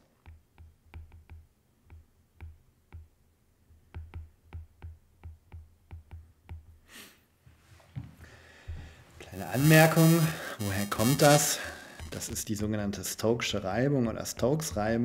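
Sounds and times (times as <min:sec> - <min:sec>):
stylus tapping on tablet screen: 0:00.1 - 0:06.9, 0:13.4 - 0:15.0
short breath: 0:08.2 - 0:09.1.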